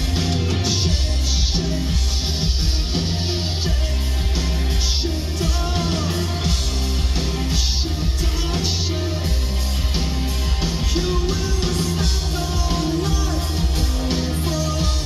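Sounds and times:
live rock band playing: 0.0 - 15.0
man singing: 0.0 - 15.0.

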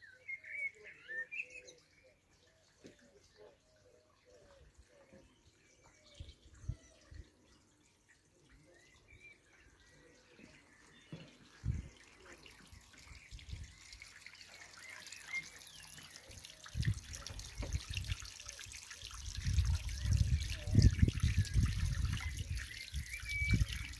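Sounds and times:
water trickling and splashing: 1.1 - 23.9
wind buffeting on microphone: 11.6 - 12.0, 16.8 - 18.3, 19.2 - 23.9.

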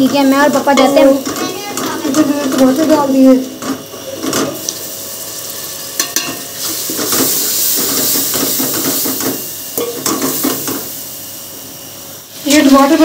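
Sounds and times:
food sizzling in hot oil: 0.0 - 13.0
spoon knocking against pot: 6.0 - 6.4, 8.4 - 10.8.

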